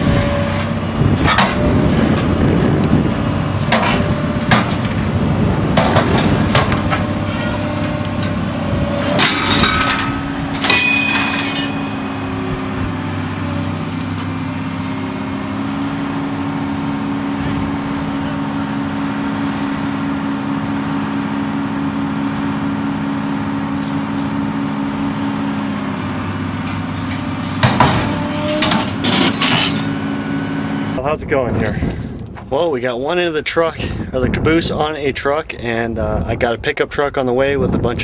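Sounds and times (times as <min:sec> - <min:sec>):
heavy equipment engine running: 0:00.0 - 0:38.0
sharp metal clanks: 0:09.0 - 0:13.0.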